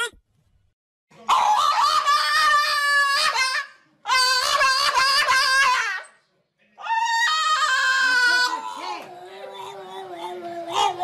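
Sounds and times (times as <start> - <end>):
dog howling: 6.8 - 11.0.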